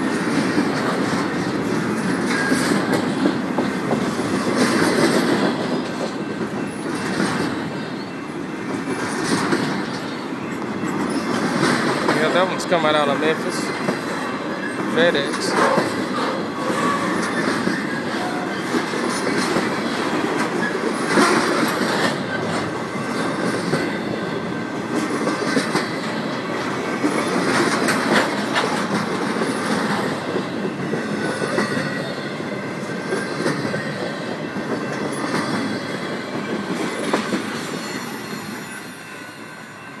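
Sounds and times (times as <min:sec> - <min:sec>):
freight train wheels rumbling: 0:00.0 - 0:40.0
wheel squeal: 0:15.7 - 0:19.3.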